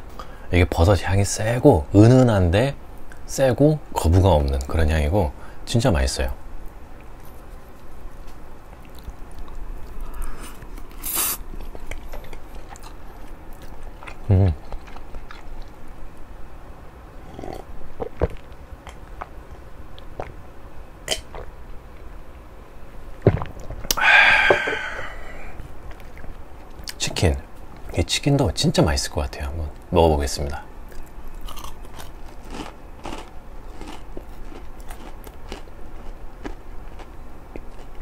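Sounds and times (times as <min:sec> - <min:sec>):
person chewing pasta: 0:07.0 - 0:16.2, 0:17.3 - 0:20.4, 0:21.1 - 0:22.4, 0:23.2 - 0:27.0, 0:30.9 - 0:38.0.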